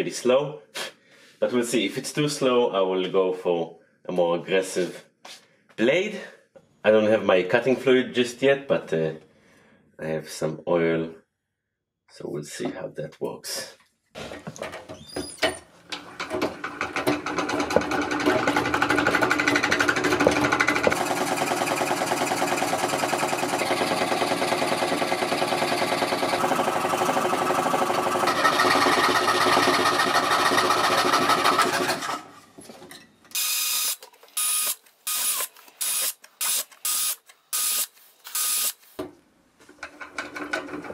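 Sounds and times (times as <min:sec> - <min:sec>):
scroll saw cutting steel: 0:17.0 - 0:32.3, 0:33.3 - 0:38.8.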